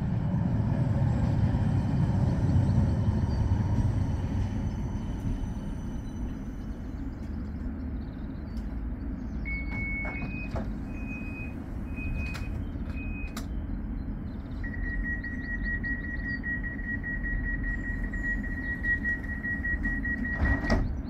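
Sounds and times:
tram rumbling: 0:00.0 - 0:21.0
high electronic beeps: 0:14.6 - 0:20.4.

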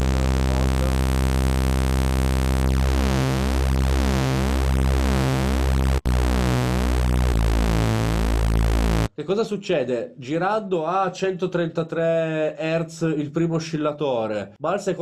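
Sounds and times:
detuned sawtooth synth tone: 0:00.0 - 0:09.1.

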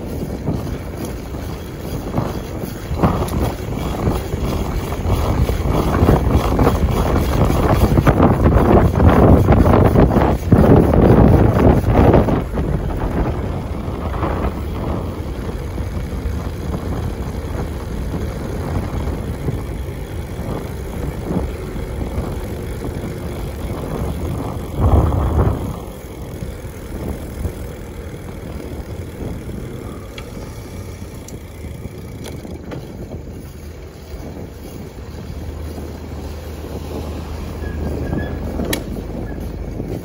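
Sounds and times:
bike tyres on paved road: 0:00.0 - 0:40.0
wind rushing on microphone: 0:00.0 - 0:40.0.

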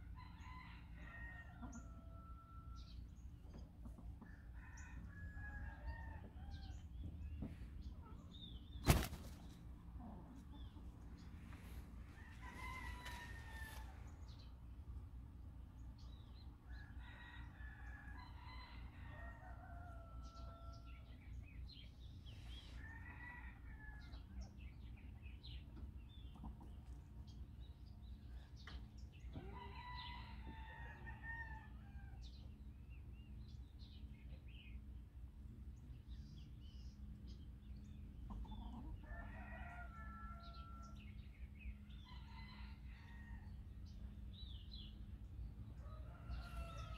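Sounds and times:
roosters crowing: 0:00.0 - 0:03.0, 0:12.1 - 0:14.1, 0:29.4 - 0:32.4, 0:38.4 - 0:41.2, 0:41.8 - 0:43.7, 0:45.7 - 0:46.9.

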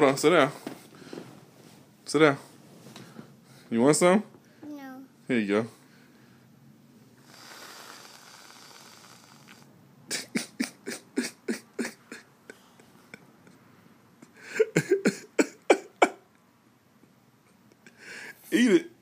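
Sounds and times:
aerosol can hissing: 0:07.2 - 0:09.6.

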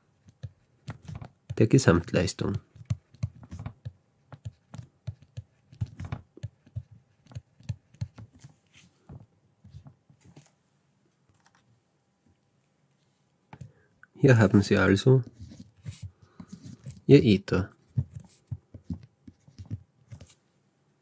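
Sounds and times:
stylus tapping on tablet screen: 0:02.4 - 0:08.5.

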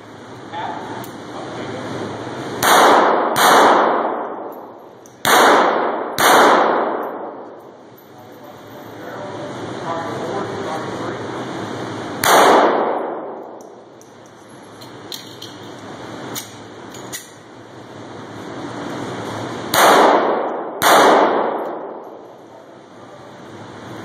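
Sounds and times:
echoing handgun shots: 0:02.6 - 0:07.6, 0:12.2 - 0:13.6, 0:19.7 - 0:22.2.

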